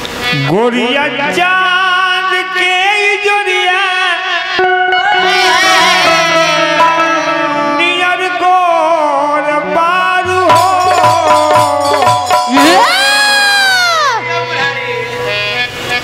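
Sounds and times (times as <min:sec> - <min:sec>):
folk song melody with bass: 0:00.0 - 0:16.0
hand drums: 0:10.3 - 0:13.6.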